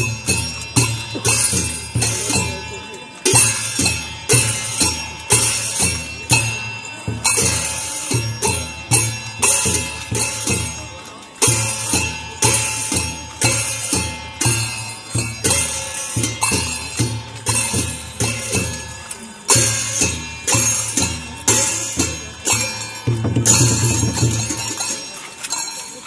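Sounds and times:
bells jingling: 0:00.0 - 0:26.0
drum beats: 0:00.0 - 0:26.0
ringing metal percussion: 0:00.0 - 0:26.0.

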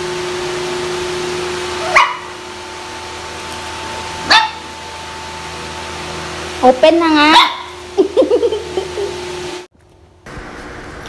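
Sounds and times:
puppies yapping: 0:01.8 - 0:02.4, 0:04.2 - 0:04.7.

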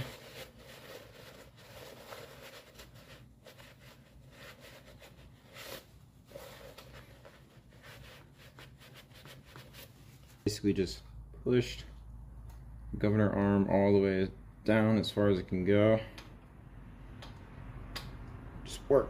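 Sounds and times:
paper towel rubbing metal: 0:00.0 - 0:10.4.

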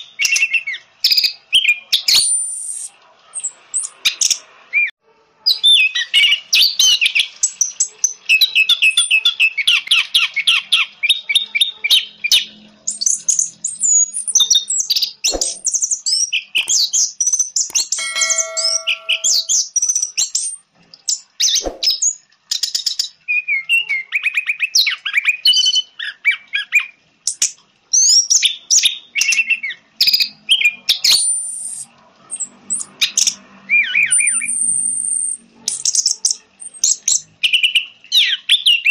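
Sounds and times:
thrush singing trills and twitters: 0:17.7 - 0:19.7.

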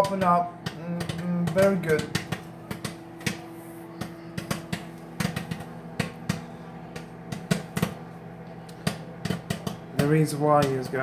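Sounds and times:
microwave humming: 0:00.0 - 0:11.0
popcorn popping: 0:00.0 - 0:11.0.

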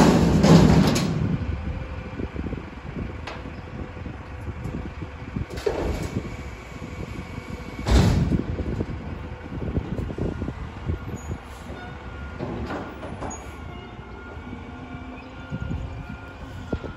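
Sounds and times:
metal bins knocking and clanking: 0:00.0 - 0:01.2
heavy bang: 0:00.0 - 0:01.4, 0:07.8 - 0:08.4
garbage truck engine rumble: 0:00.0 - 0:16.9.

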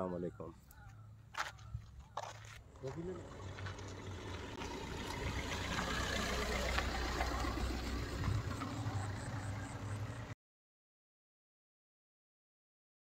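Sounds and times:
tyres on dirt: 0:00.3 - 0:10.3
car engine running low: 0:00.4 - 0:10.4.

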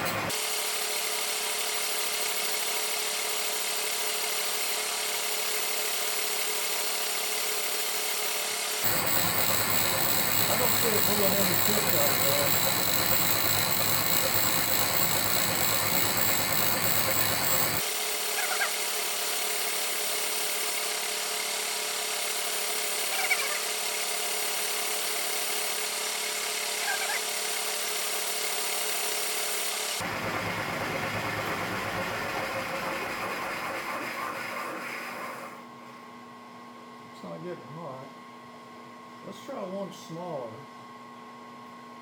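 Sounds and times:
milling machine hum: 0:08.8 - 0:17.9
drill bit squeaking: 0:08.8 - 0:18.7.

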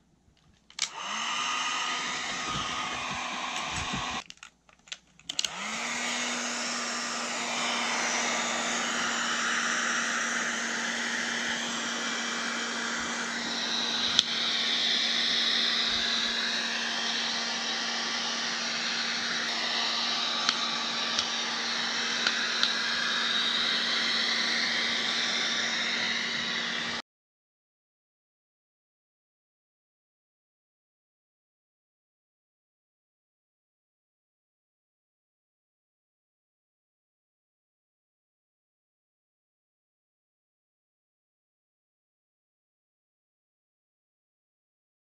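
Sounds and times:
hair dryer blowing: 0:00.8 - 0:04.2, 0:05.3 - 0:27.0.

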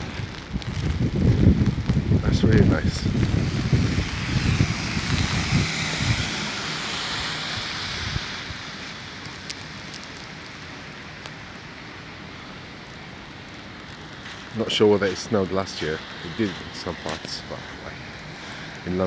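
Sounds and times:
street noise hiss: 0:00.0 - 0:19.0
bus passing by: 0:03.4 - 0:09.2.

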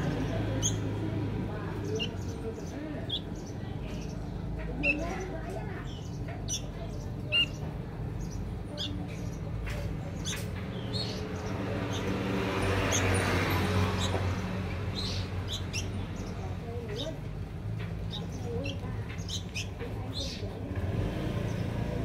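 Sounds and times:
bird chirps and squawks: 0:01.8 - 0:03.5, 0:04.8 - 0:07.6, 0:13.9 - 0:16.4, 0:18.0 - 0:20.5.

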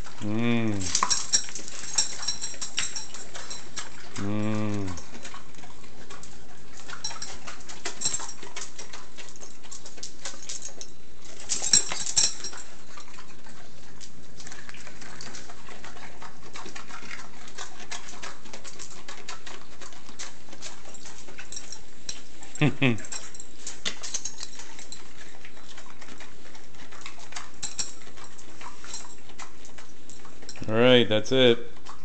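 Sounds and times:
dog chewing crunchily: 0:00.0 - 0:32.0.

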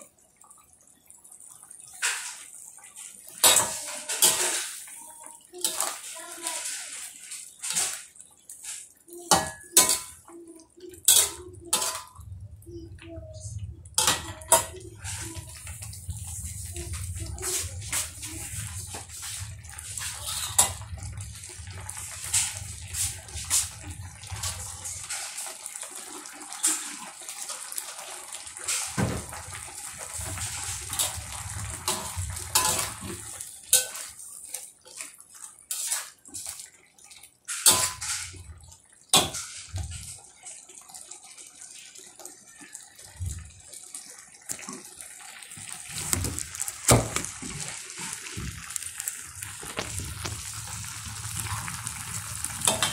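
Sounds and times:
gravy bubbling in a wok: 0:00.0 - 0:52.9
metal fork scraping a wok: 0:35.7 - 0:36.5.

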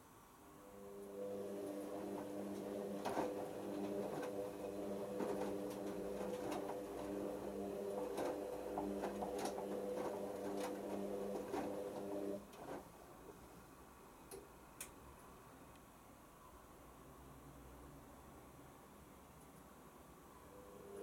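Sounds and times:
washing machine motor hum: 0:00.6 - 0:13.0.

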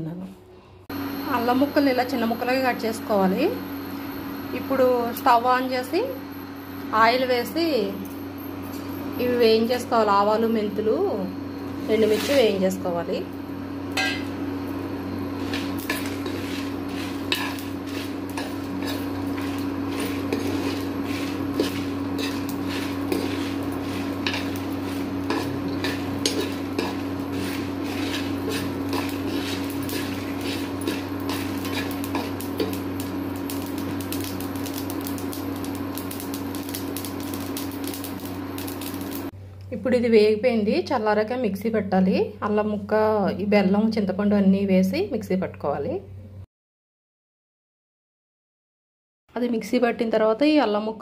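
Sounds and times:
induction cooktop hum: 0:00.0 - 0:46.4
spices popping in hot oil: 0:13.8 - 0:39.3.

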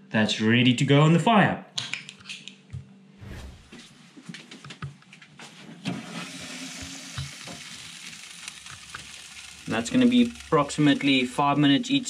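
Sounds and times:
fish sizzling over coals: 0:05.9 - 0:12.0.

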